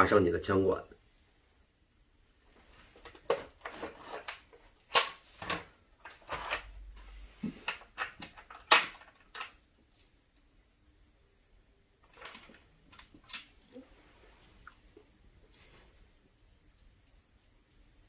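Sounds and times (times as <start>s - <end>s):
rustling: 2.3s - 10.4s, 12.0s - 18.0s.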